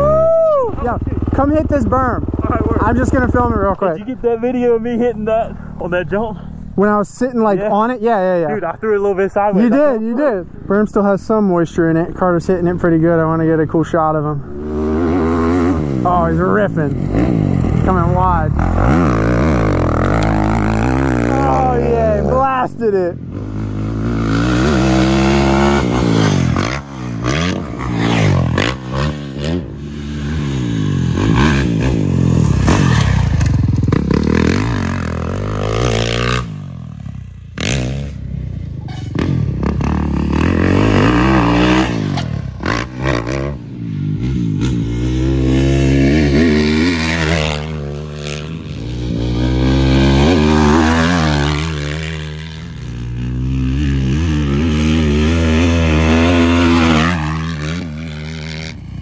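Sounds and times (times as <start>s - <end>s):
dirt bike engines revving: 0.0s - 59.0s
motorcycle engine idling: 0.7s - 6.8s.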